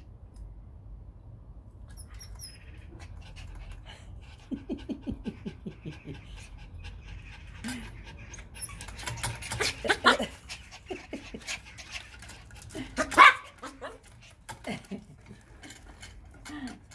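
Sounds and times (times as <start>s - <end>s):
dogs panting: 2.7s - 16.9s
dog barking: 13.0s - 14.0s.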